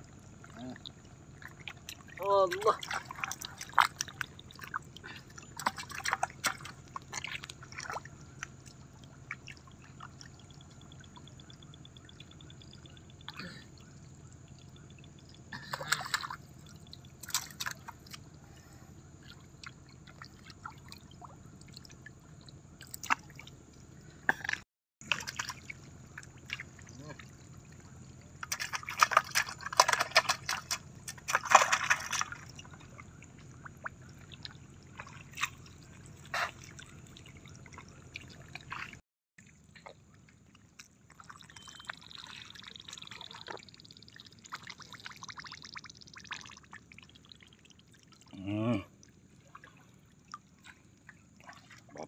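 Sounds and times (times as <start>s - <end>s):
hands splashing in muddy water: 1.4s - 8.5s, 17.2s - 18.2s, 24.3s - 27.2s, 28.4s - 39.0s.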